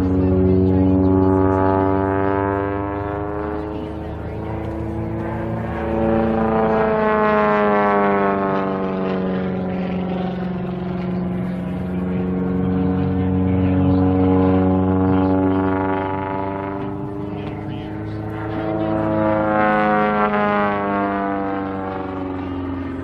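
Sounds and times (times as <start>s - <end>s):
propeller plane engine droning: 0.0s - 23.0s.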